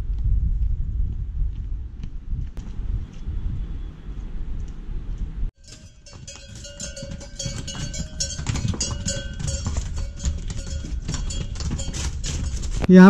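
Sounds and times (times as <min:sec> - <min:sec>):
wind rumble on microphone: 0:00.0 - 0:05.5
hooves clopping on stony path: 0:00.0 - 0:13.0
mule bells ringing: 0:05.6 - 0:13.0.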